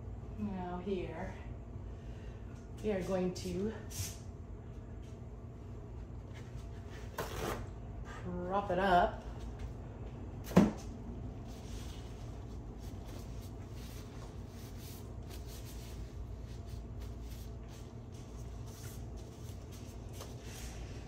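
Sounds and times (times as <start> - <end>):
low room hum: 0.0 - 21.0.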